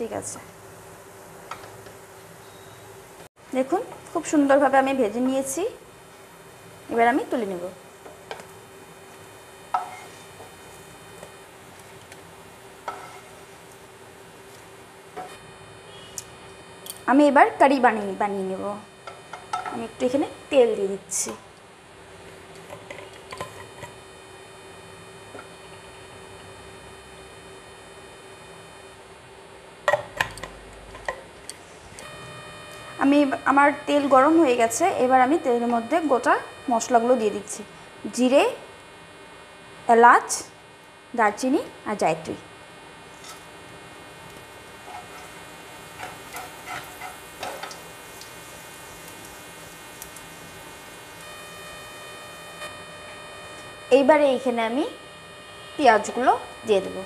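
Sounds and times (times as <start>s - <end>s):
induction cooktop electrical hum: 0.0s - 57.0s
spices crackling: 3.7s - 39.0s, 40.7s - 57.0s
oil hissing in pan: 44.8s - 51.2s.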